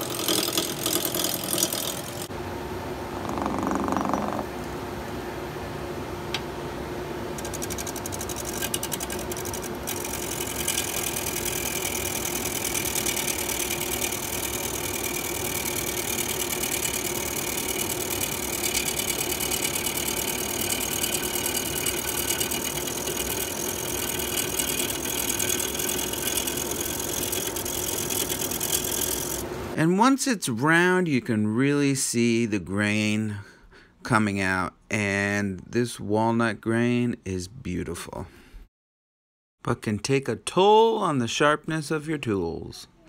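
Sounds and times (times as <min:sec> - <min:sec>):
lathe motor hum: 0:00.0 - 0:02.3, 0:07.3 - 0:29.8.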